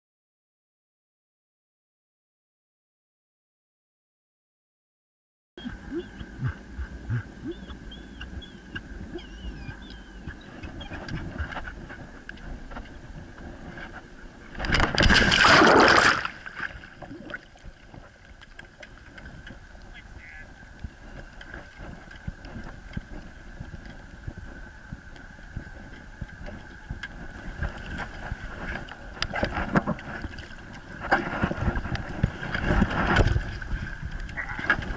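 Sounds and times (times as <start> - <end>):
water lapping and gurgling: 5.6 - 34.9
water sloshing around boat: 5.6 - 34.9
loud water splash: 15.0 - 16.8.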